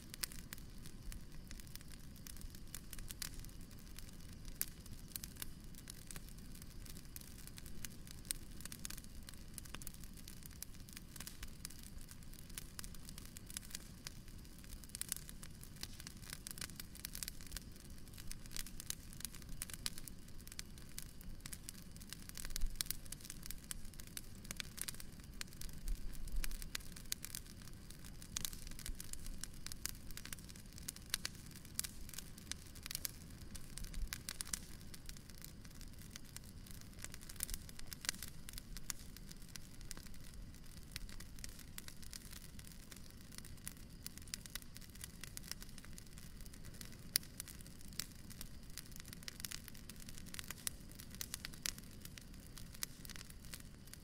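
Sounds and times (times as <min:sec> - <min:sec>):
bonfire crackling and popping: 0:00.0 - 0:54.0.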